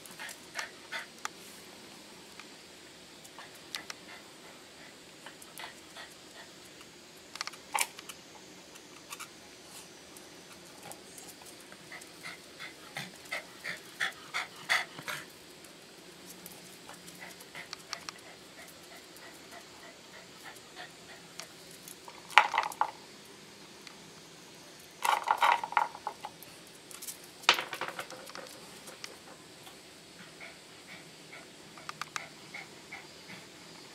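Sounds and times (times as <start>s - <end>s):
small ticks and scuffs: 0.0s - 33.9s
dog panting: 0.1s - 1.2s, 3.4s - 6.6s, 11.8s - 15.4s, 16.9s - 21.5s, 30.2s - 33.8s
stone clattering on concrete: 27.5s - 28.6s.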